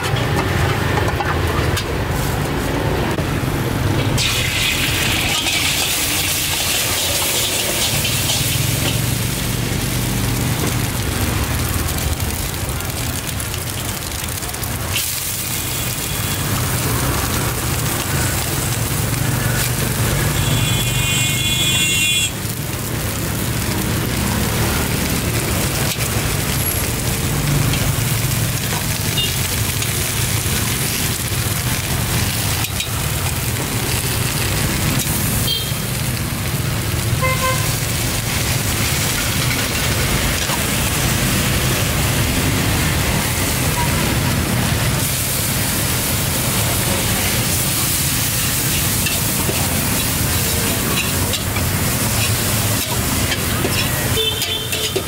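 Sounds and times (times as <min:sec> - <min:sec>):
motorbike traffic: 0:00.0 - 0:55.0
stir-fry sizzling in a wok: 0:00.0 - 0:55.0
metal ladle scraping wok: 0:03.9 - 0:09.4, 0:47.4 - 0:55.0.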